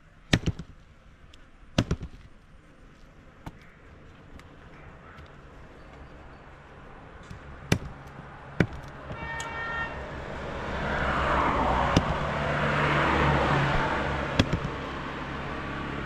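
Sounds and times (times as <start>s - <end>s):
sharp knocks: 0.3s - 0.7s, 1.8s - 2.3s, 7.2s - 9.5s, 11.8s - 12.4s, 14.3s - 15.0s
motor vehicle passing: 3.7s - 16.0s
vehicle horn toot: 9.0s - 10.2s.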